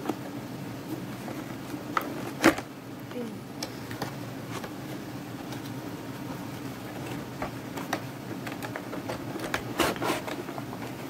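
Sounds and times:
steady low hum: 0.0s - 11.0s
cardboard rustling: 3.8s - 11.0s
cardboard flaps clicking and scraping: 6.8s - 11.0s.

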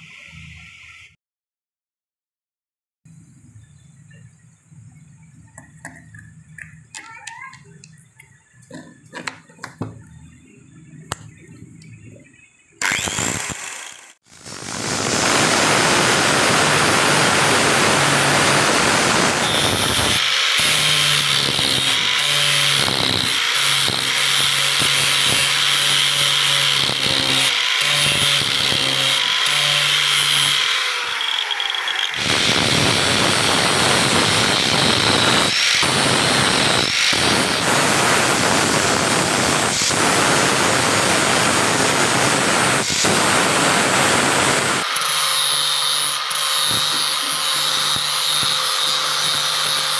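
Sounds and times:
angle grinder grinding metal: 12.8s - 49.9s.

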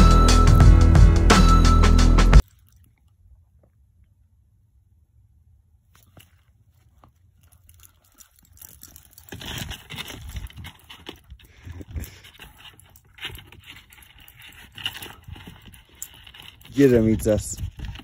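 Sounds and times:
dogs scuffling: 7.0s - 18.0s.

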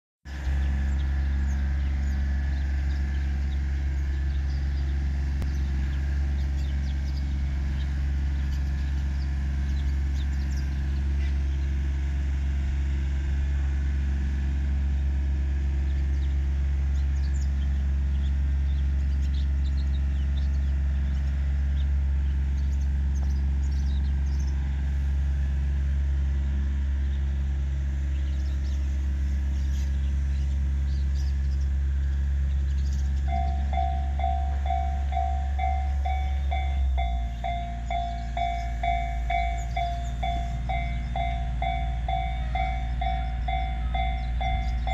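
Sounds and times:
low mechanical hum: 0.3s - 44.9s
faint bird chirps: 32.6s - 44.9s.

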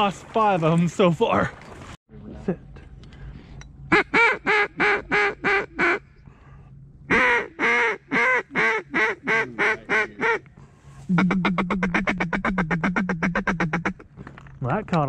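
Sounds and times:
duck call quacks: 3.9s - 6.0s, 7.1s - 10.5s, 11.1s - 14.0s.

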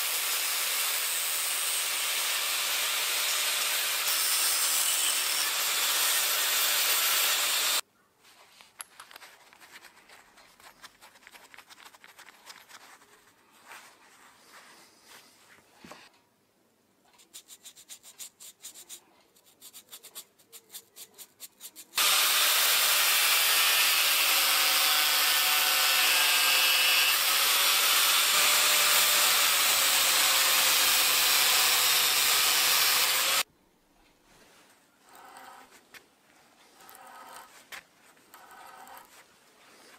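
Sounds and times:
quick rasping strokes: 17.0s - 22.0s
grinding wheel grinding metal: 22.0s - 33.4s.

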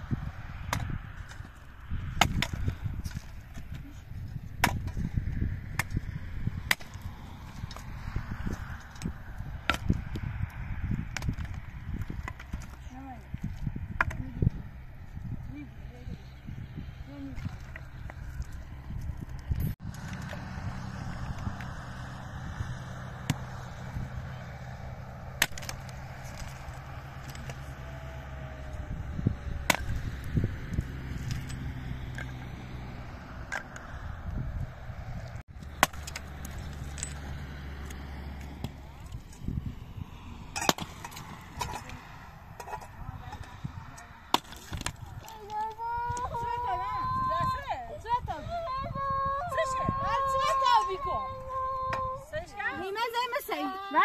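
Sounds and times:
dry branches being chopped: 0.6s - 3.8s, 4.6s - 5.1s, 5.7s - 10.2s, 23.2s - 28.0s, 29.4s - 32.4s, 35.5s - 39.4s, 40.5s - 42.7s, 44.2s - 45.4s
pickaxe striking stony ground: 0.7s - 1.5s, 2.1s - 3.8s, 4.5s - 7.0s, 8.5s - 10.2s, 25.4s - 27.6s, 29.6s - 32.4s, 35.6s - 37.3s, 40.6s - 42.0s, 44.3s - 45.1s.

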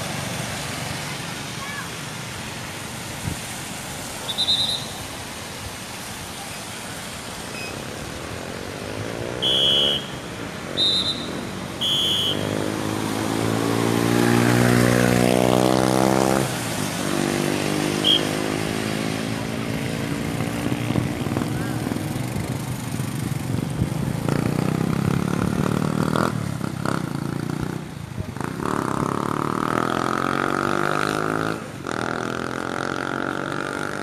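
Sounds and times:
vehicle engine passing on wet road: 0.0s - 34.0s
short high whistle blasts: 4.3s - 5.0s, 9.4s - 10.1s, 10.8s - 12.4s, 18.0s - 18.3s.

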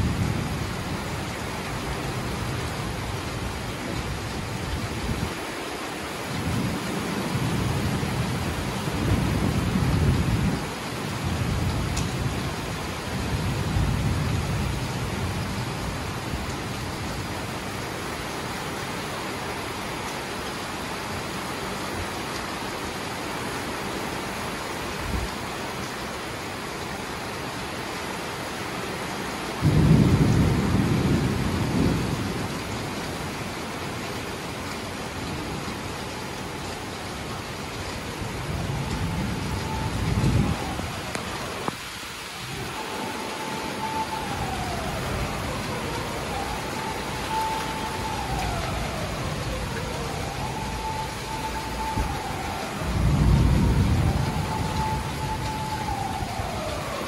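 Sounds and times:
heavy rain hissing: 0.0s - 57.0s
thunder rumbling: 6.3s - 17.7s, 29.6s - 33.3s, 38.0s - 57.0s.

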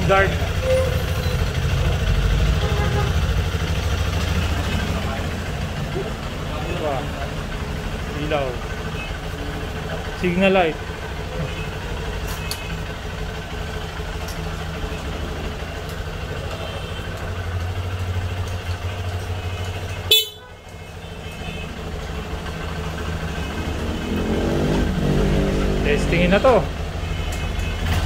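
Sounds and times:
motorcycle engine idling: 0.0s - 25.1s, 26.1s - 28.0s
short horn beep: 20.1s - 20.5s.

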